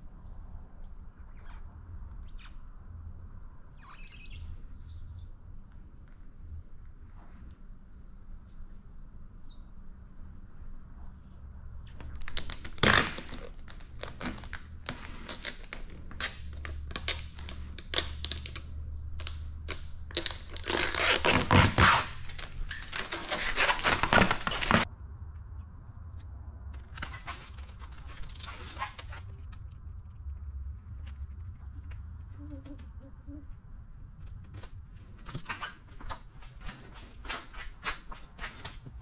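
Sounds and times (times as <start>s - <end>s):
plastic film crackling and peeling: 11.8s - 24.9s.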